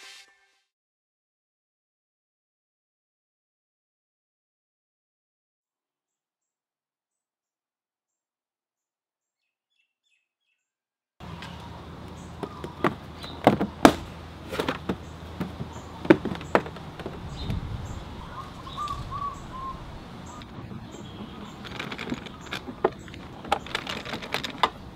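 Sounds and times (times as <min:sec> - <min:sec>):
birds chirping: 0:09.4 - 0:24.9
rubber mat knocks and clicks: 0:12.4 - 0:17.6.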